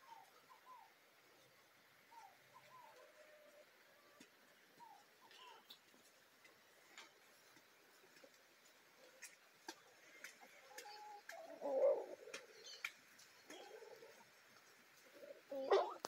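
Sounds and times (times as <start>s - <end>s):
hens clucking softly: 8.1s - 16.0s.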